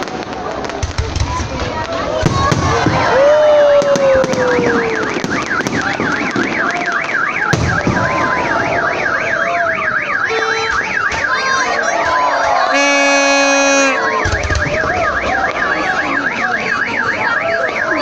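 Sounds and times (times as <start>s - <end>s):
fireworks bangs: 0.0s - 18.0s
falling firework whistle: 2.2s - 16.2s
car alarm warbling: 4.5s - 18.0s.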